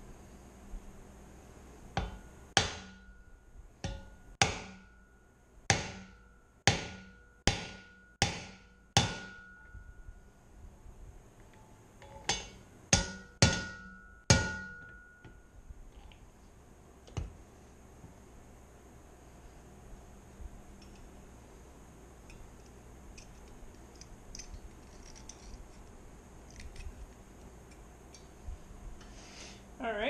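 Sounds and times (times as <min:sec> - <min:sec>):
hammer striking metal: 0:02.0 - 0:10.2, 0:12.0 - 0:15.4.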